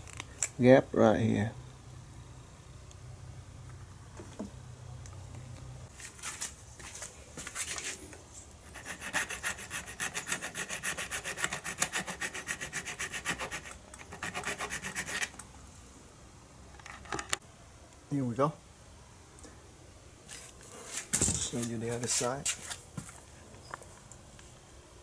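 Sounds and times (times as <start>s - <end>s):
hand file scraping metal: 8.7s - 15.4s.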